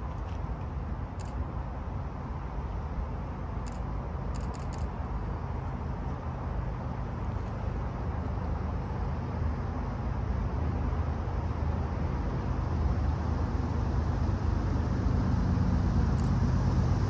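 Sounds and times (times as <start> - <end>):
diesel train rumbling: 0.0 - 17.0.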